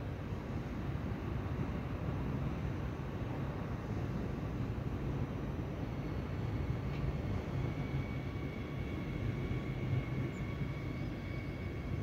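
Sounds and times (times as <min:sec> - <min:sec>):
train rumbling past: 0:00.0 - 0:12.0.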